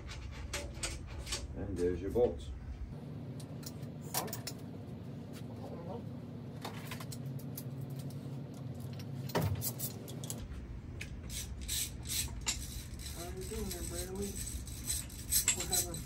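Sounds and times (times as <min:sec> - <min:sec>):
steady low hum: 0:00.0 - 0:16.0
metal tool clicks and clinks: 0:11.7 - 0:16.0.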